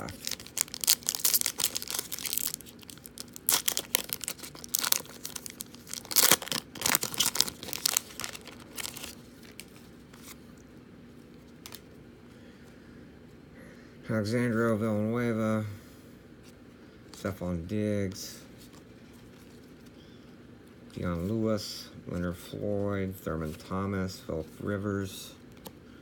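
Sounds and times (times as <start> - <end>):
foil wrapper tearing and crinkling: 0.0 - 9.7.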